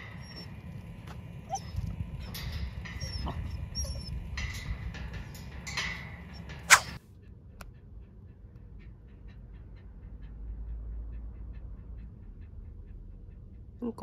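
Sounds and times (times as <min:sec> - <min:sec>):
dog whining in high squeaks: 0:00.0 - 0:00.6, 0:01.5 - 0:02.4, 0:03.0 - 0:04.2
low outdoor rumble: 0:00.0 - 0:14.0
sharp loud click: 0:06.6 - 0:07.0.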